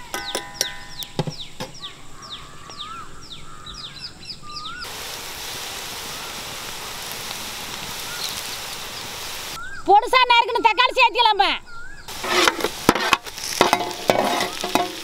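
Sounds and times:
birds chirping and whistling: 0:00.0 - 0:04.9, 0:06.1 - 0:12.2
onions sizzling in oil: 0:04.5 - 0:09.6, 0:12.1 - 0:15.0.

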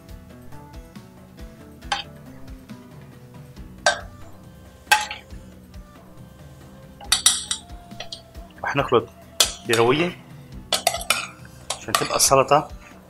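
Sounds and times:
background music: 0:00.0 - 0:13.0
metal spoon clinking on steel bowls: 0:01.9 - 0:02.1, 0:03.9 - 0:04.2, 0:04.9 - 0:05.4, 0:07.0 - 0:08.3, 0:09.4 - 0:10.1, 0:10.7 - 0:12.5.

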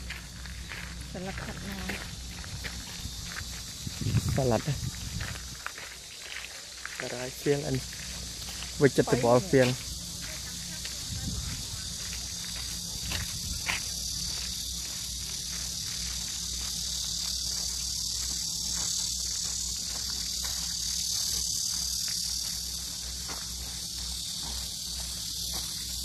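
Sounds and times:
insects buzzing: 0:00.0 - 0:26.0.

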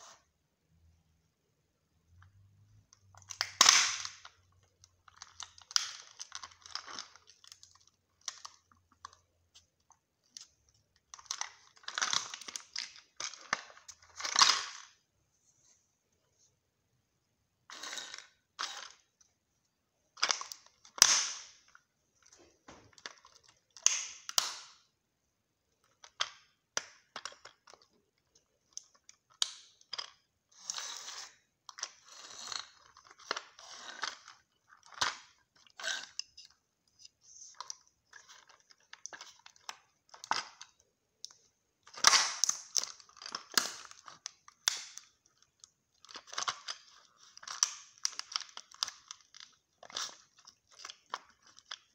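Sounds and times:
plastic model cracking underfoot: 0:03.2 - 0:09.2, 0:20.2 - 0:24.8, 0:37.6 - 0:51.9.

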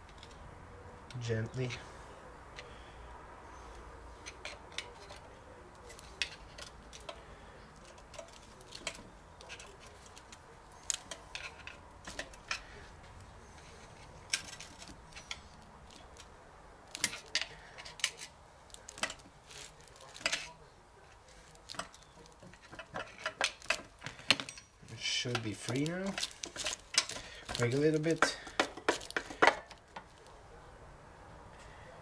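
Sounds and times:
screwdriver scraping metal: 0:21.7 - 0:29.8.

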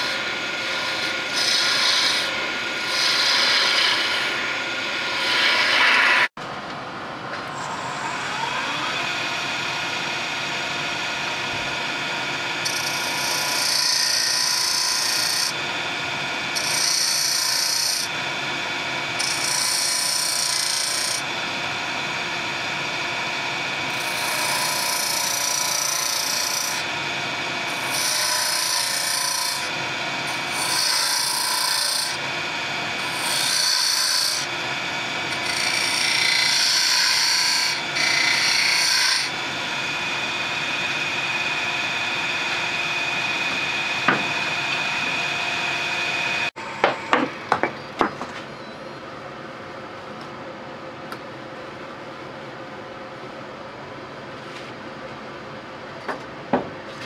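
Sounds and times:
turning tool scraping wood: 0:00.0 - 0:04.4
wood lathe whine: 0:00.0 - 0:06.3, 0:07.5 - 0:48.7.

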